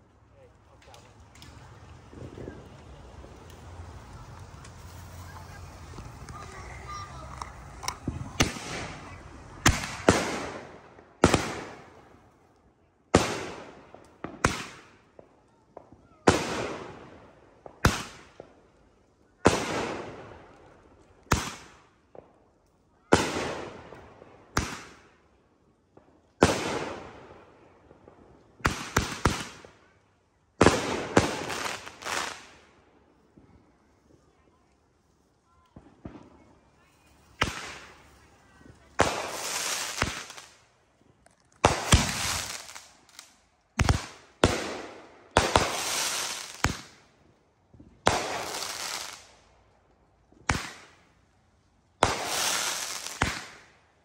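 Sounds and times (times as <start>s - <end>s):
fireworks bangs: 0.8s - 12.2s, 13.1s - 18.6s, 19.4s - 20.5s, 23.1s - 25.1s, 26.0s - 29.9s, 30.6s - 34.4s, 35.6s - 40.7s, 41.6s - 47.1s, 47.7s - 49.4s, 50.3s - 51.1s, 52.0s - 53.8s.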